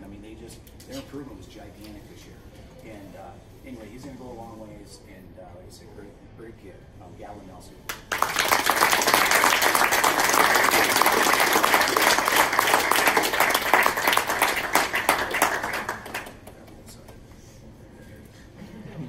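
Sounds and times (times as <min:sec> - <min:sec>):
audience applauding: 0:08.0 - 0:16.7.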